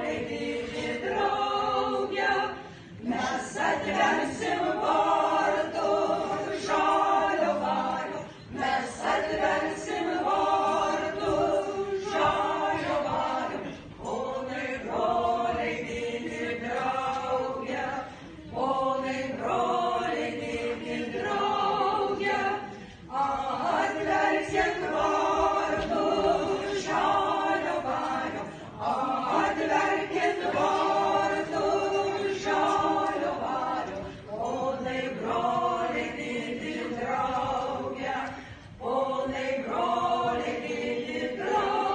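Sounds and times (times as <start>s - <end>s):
women singing a cappella: 0.0s - 41.9s
breaths: 2.6s - 3.0s, 22.7s - 23.1s, 38.3s - 38.8s.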